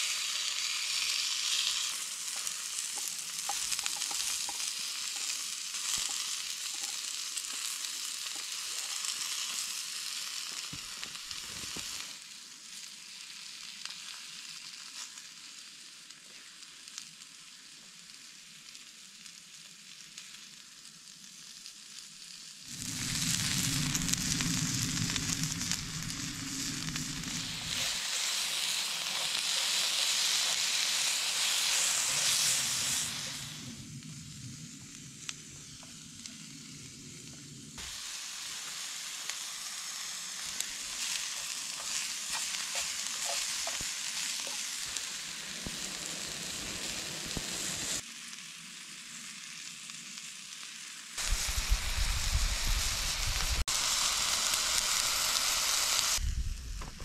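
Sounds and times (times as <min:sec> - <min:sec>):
tossing and stirring in a pan: 0:00.0 - 0:12.0, 0:38.3 - 0:45.8
food sizzling in a hot pan: 0:00.0 - 0:56.6
low rumble: 0:22.7 - 0:28.0, 0:51.2 - 0:53.6, 0:56.2 - 0:57.0.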